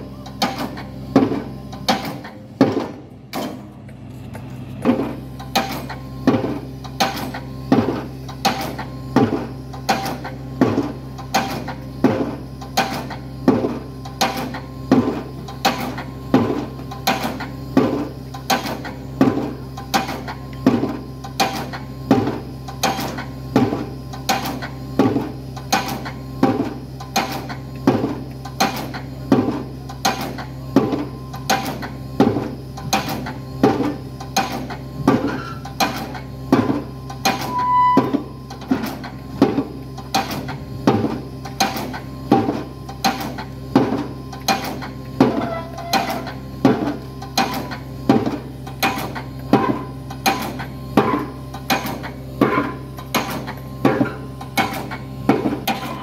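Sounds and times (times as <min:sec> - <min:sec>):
excavator engine hum: 0:00.0 - 0:56.0.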